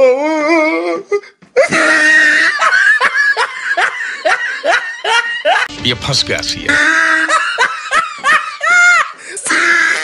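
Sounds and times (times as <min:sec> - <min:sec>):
person laughing: 0:06.7 - 0:09.0.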